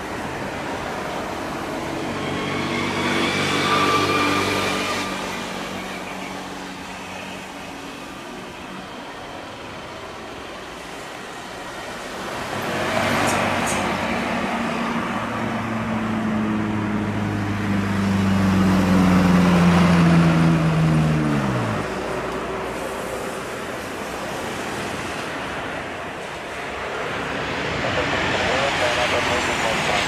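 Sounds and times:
jet climbing after takeoff: 0:00.0 - 0:30.0
jet engines droning on approach: 0:00.0 - 0:30.0.

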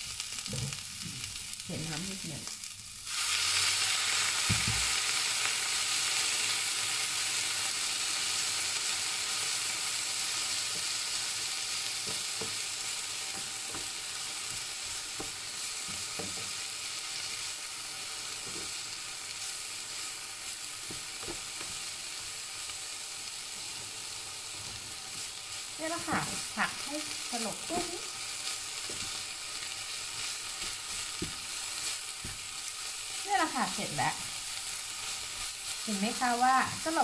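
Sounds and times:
food sizzling in a frying pan: 0:00.0 - 0:37.0
wooden spatula knocking on pan: 0:31.0 - 0:31.4.

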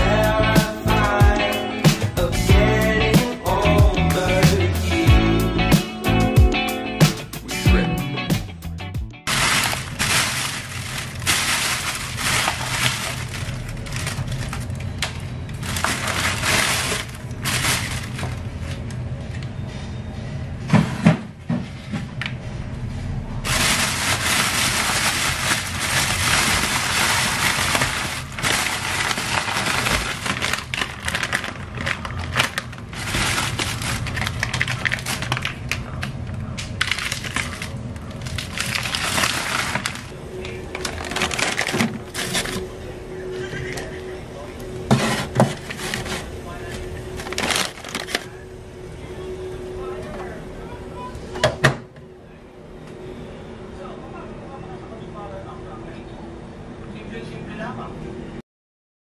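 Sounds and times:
plastic bag crinkling: 0:09.2 - 0:18.6, 0:23.5 - 0:43.0, 0:44.9 - 0:48.5.

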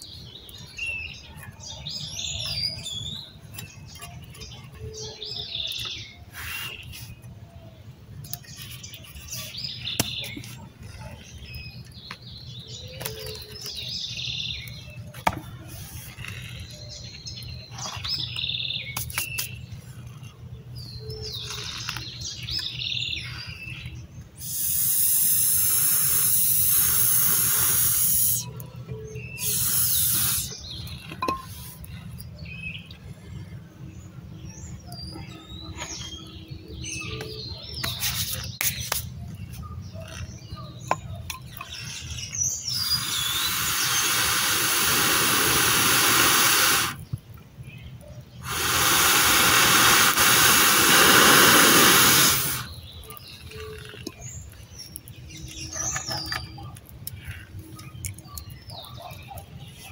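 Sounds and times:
small birds chirping: 0:00.0 - 0:59.9
loud rushing hiss: 0:24.4 - 0:28.5, 0:29.4 - 0:30.5, 0:42.7 - 0:47.0, 0:48.4 - 0:52.8.

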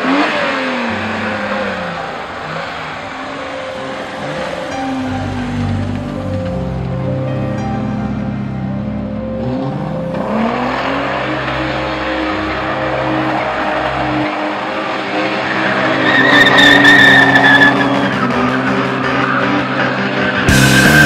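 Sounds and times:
car engine under load: 0:00.0 - 0:21.0
tyre squeal on asphalt: 0:10.2 - 0:21.0.

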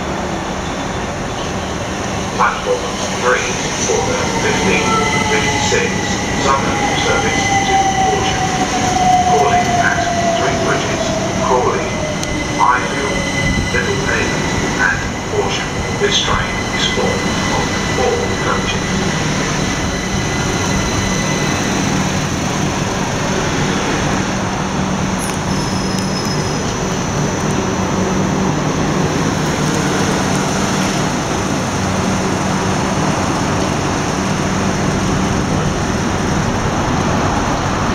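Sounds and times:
train wheels rumbling on rail: 0:00.0 - 0:37.9
high squeal: 0:25.2 - 0:26.9.

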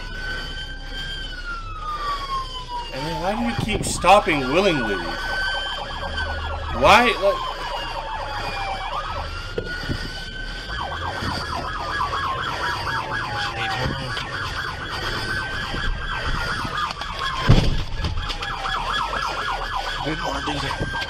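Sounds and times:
fast warbling siren yelp: 0:00.0 - 0:21.0
police siren wail: 0:00.0 - 0:21.0
loud thump: 0:17.4 - 0:18.2.

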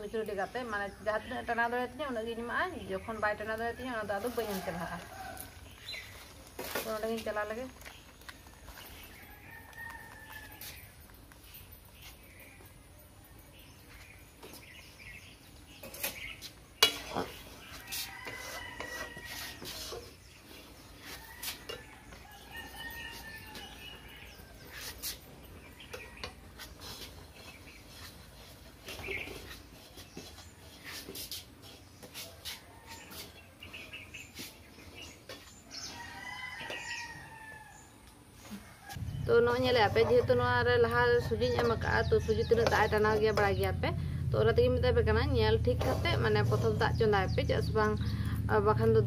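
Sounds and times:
birds calling: 0:07.7 - 0:44.2
metal spatula scraping a wok: 0:15.8 - 0:22.0, 0:45.6 - 0:47.4.

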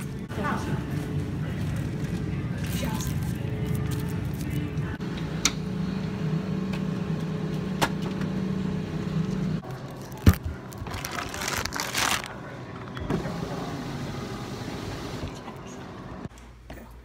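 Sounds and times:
plastic bag rustling: 0:10.0 - 0:12.4.

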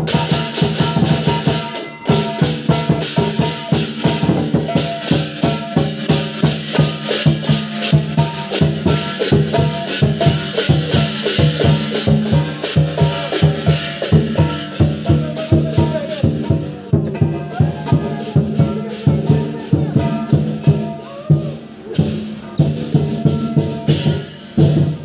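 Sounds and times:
crash cymbals clashing: 0:00.0 - 0:25.0
gong: 0:00.0 - 0:25.0
large drum beating: 0:00.0 - 0:25.0.

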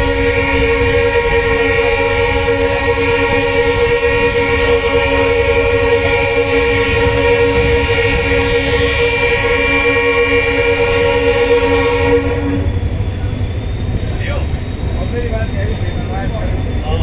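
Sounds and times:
train horn blast: 0:00.0 - 0:13.0
moving train rumble: 0:00.0 - 0:17.0.

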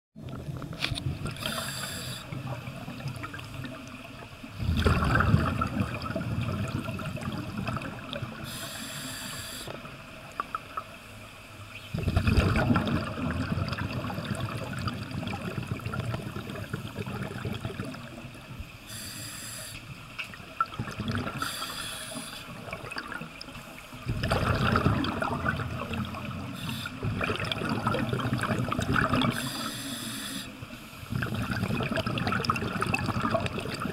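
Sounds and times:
gurgling exhaled bubbles: 0:00.2 - 0:08.6, 0:11.9 - 0:18.5, 0:20.3 - 0:29.8, 0:31.0 - 0:33.9
steady bubbling: 0:00.2 - 0:19.0, 0:20.2 - 0:33.9
short high hisses: 0:01.4 - 0:02.3, 0:08.5 - 0:09.8, 0:18.9 - 0:19.8, 0:29.4 - 0:30.6.

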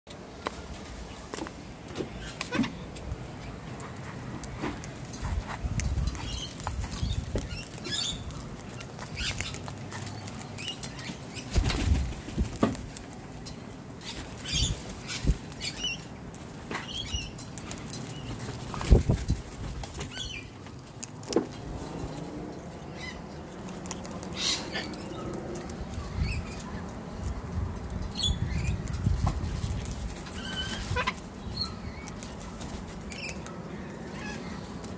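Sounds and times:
bird beak cracking seeds: 0:03.9 - 0:13.5, 0:23.5 - 0:27.9
wings flapping: 0:06.6 - 0:13.2, 0:18.1 - 0:20.3.

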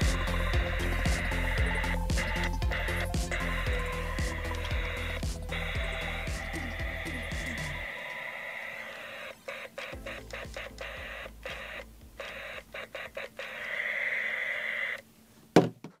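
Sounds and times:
walkie-talkie static hiss: 0:04.3 - 0:15.1.

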